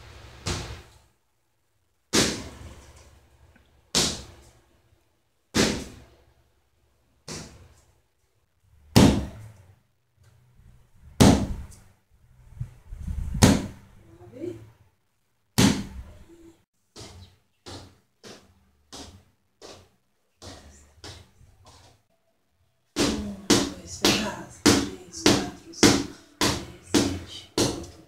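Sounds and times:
boxing gloves striking mitts: 2.1s - 2.6s, 3.9s - 4.4s, 5.6s - 6.0s, 7.3s - 7.7s, 9.0s - 9.4s, 11.2s - 11.7s, 13.4s - 13.8s, 15.6s - 16.0s.

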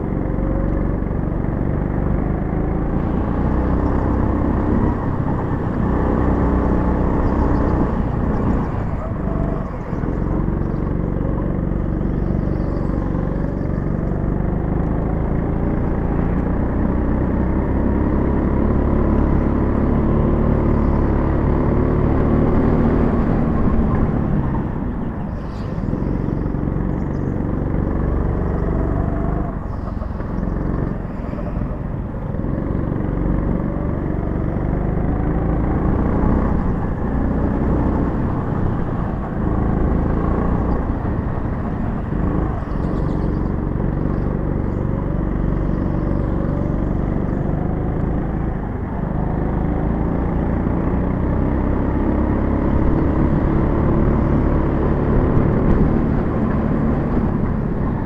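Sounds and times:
go-kart engine running: 0.0s - 58.0s.

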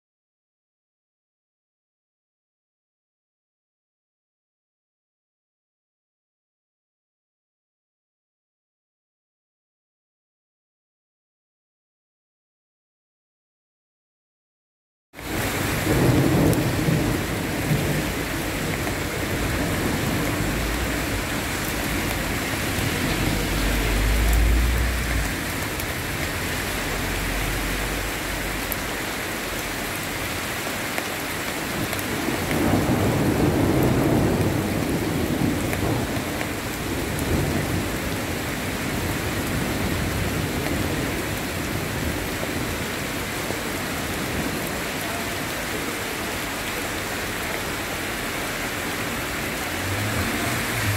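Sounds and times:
heavy rain on a street: 15.2s - 50.9s
thunder rumbling: 15.3s - 29.9s, 32.1s - 38.2s, 49.7s - 50.9s.

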